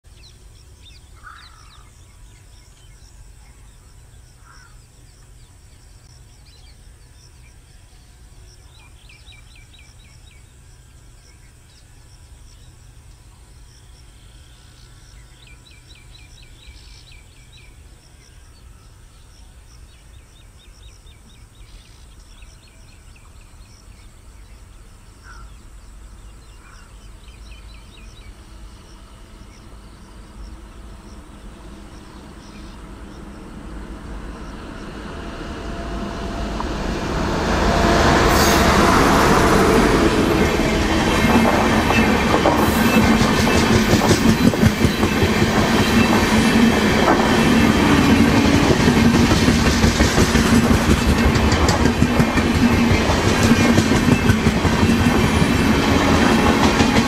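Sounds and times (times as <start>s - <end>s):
steady low rumble: 29.5s - 44.0s.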